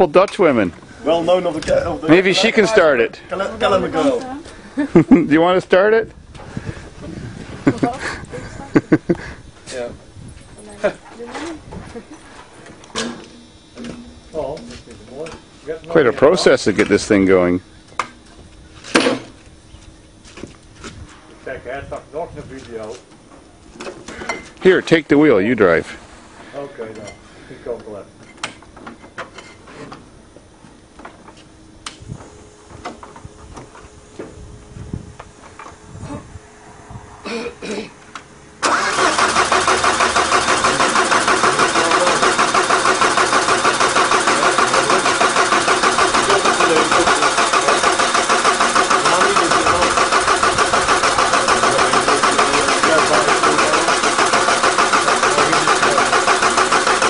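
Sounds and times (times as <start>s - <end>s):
faint steady hum: 0.0s - 38.7s
diesel engine cranking on starter: 38.6s - 57.0s.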